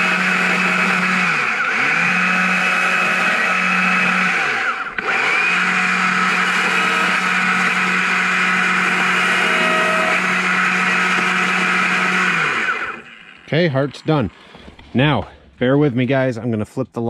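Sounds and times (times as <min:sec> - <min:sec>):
chainsaw carving a log: 0:00.0 - 0:14.4.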